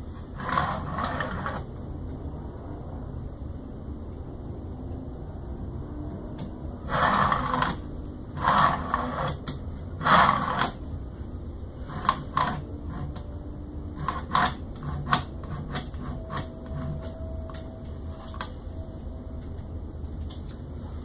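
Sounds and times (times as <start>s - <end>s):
printer bed sliding on rods: 0.3s - 1.7s, 11.8s - 13.3s.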